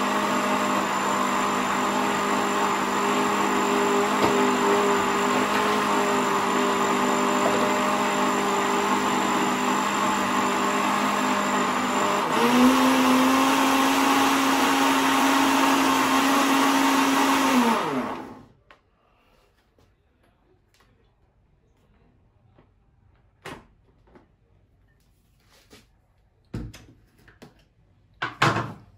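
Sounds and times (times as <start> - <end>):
blender running: 0.0 - 18.5.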